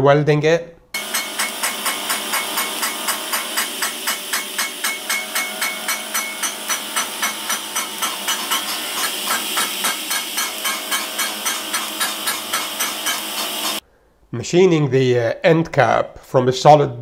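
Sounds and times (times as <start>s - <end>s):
pulsed welding arc hiss: 1.0s - 13.8s.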